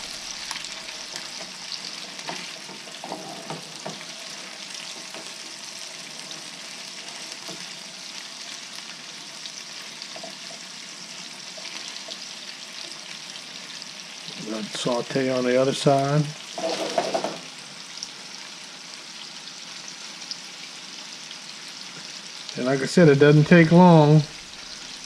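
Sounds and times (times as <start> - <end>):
fish sizzling in oil: 0.0 - 25.0
spatula scraping and knocking pan: 1.0 - 5.5, 16.6 - 17.5.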